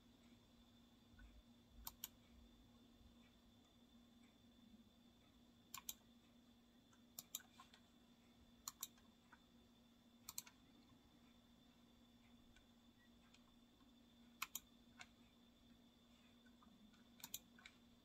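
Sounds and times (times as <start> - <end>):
low electrical hum: 0.0 - 18.0
small sharp clicks: 1.8 - 2.2, 5.7 - 6.0, 6.9 - 7.8, 8.6 - 9.4, 10.2 - 10.6, 14.4 - 15.2, 16.9 - 17.8.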